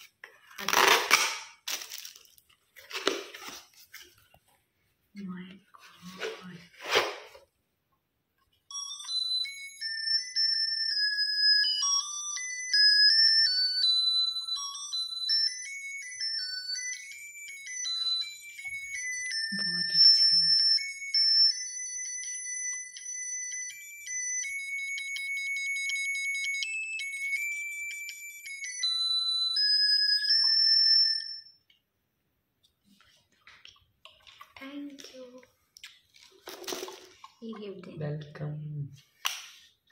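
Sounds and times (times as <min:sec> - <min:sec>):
beeping electronic melody: 0:08.7 - 0:31.4.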